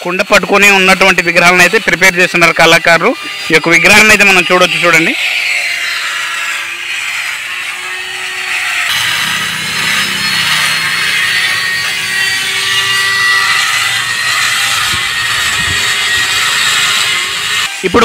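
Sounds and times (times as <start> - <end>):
electric drill grinding into stone: 0.0 - 18.0
lower hum: 8.9 - 17.7.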